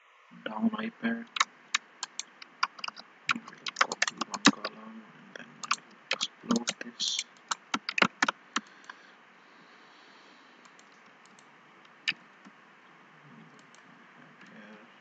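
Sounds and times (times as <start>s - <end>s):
keyboard keys clicking: 1.3s - 4.7s, 5.6s - 9.0s
mouse buttons clicking: 1.3s - 4.7s, 5.6s - 9.0s.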